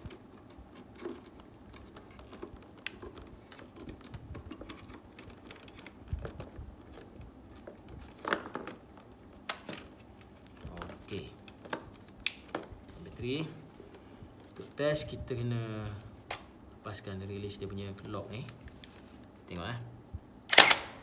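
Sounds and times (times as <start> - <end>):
sharp plastic click: 20.5 - 21.0.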